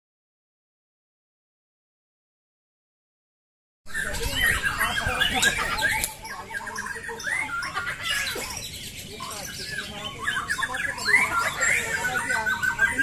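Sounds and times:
songbirds singing: 0:03.9 - 0:13.0.

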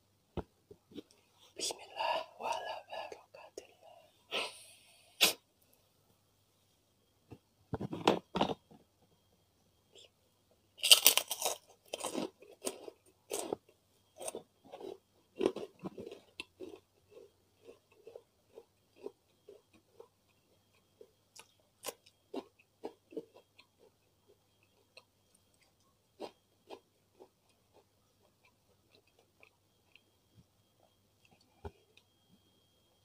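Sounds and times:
person chewing crunchy food: 0:10.8 - 0:32.2.

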